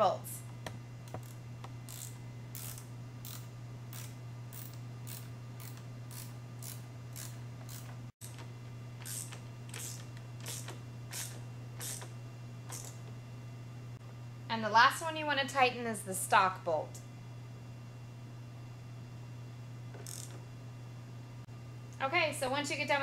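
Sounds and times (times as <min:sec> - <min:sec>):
steady low hum: 0:00.0 - 0:23.0
ratchet wrench clicking: 0:01.1 - 0:08.4, 0:09.0 - 0:12.1, 0:12.7 - 0:13.0, 0:20.0 - 0:20.4.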